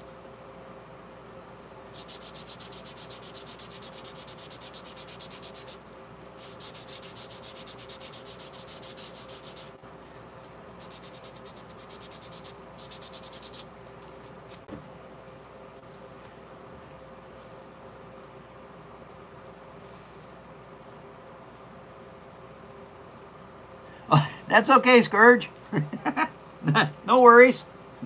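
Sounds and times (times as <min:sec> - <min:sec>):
sandpaper rubbing on paper: 0:02.0 - 0:05.8, 0:06.4 - 0:09.8, 0:10.8 - 0:13.7.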